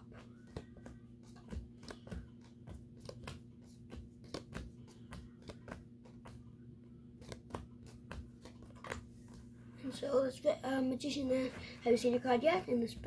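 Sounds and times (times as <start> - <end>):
playing cards snapping and slapping: 0.1 - 6.5, 7.1 - 9.5.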